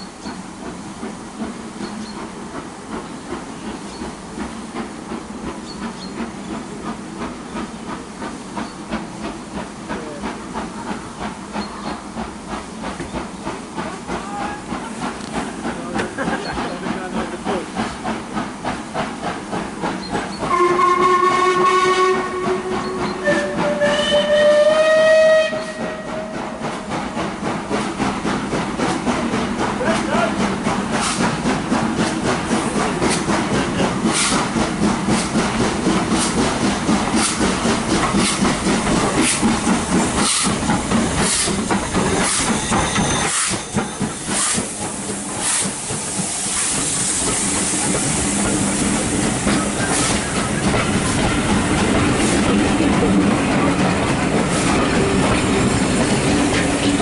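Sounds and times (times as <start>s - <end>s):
steam locomotive exhaust beats: 0.0s - 57.0s
steam whistle blasts: 20.5s - 26.5s.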